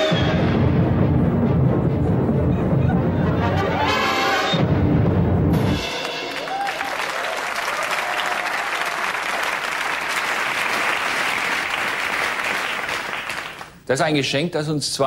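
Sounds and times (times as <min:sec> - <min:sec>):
music: 0:00.0 - 0:07.2
studio audience applauding: 0:06.0 - 0:13.8.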